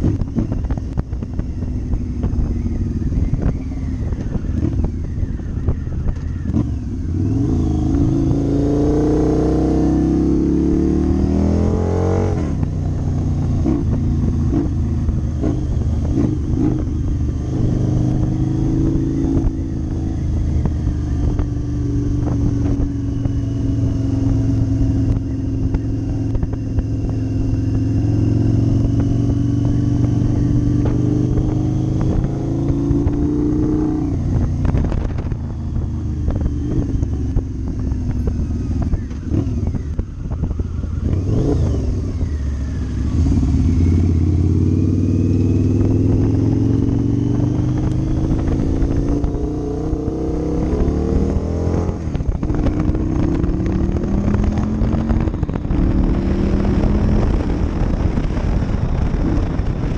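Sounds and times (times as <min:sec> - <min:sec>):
motorcycle engine pulling hard: 0:00.0 - 0:59.9
rough microphone noise: 0:28.6 - 0:42.2, 0:45.4 - 0:59.9.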